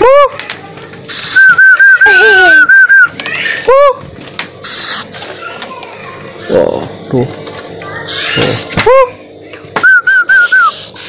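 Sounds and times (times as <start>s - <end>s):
person whistling calls: 1.1s - 3.1s, 9.8s - 11.0s
breathy hisses: 4.6s - 5.5s, 10.7s - 11.0s.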